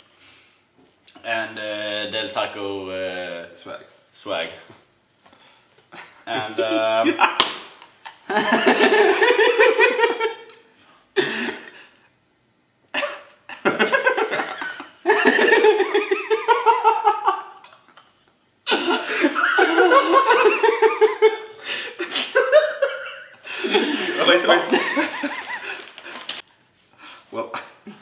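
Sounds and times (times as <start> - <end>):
men laughing: 5.9 - 10.6, 11.2 - 12.0, 13.0 - 26.2.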